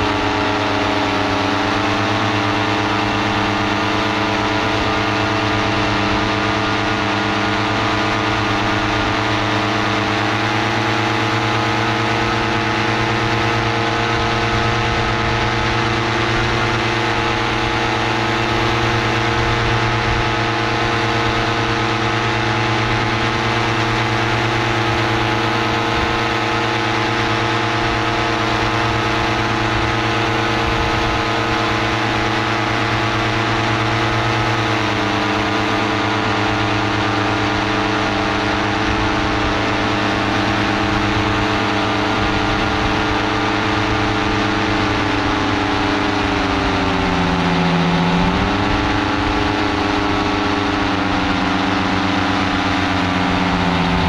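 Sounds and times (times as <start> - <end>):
paramotor engine and propeller: 0.0 - 54.0.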